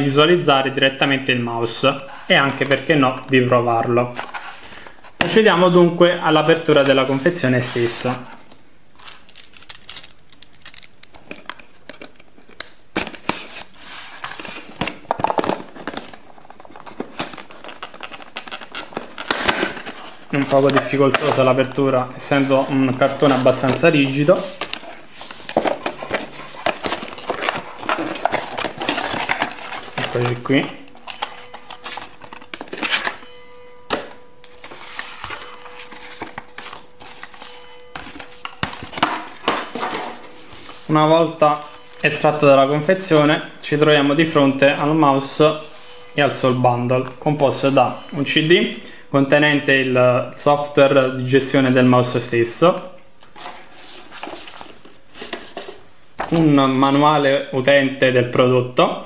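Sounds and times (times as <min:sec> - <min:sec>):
cardboard rustling and scraping: 0:04.0 - 0:05.4, 0:13.0 - 0:44.6, 0:53.3 - 0:56.5.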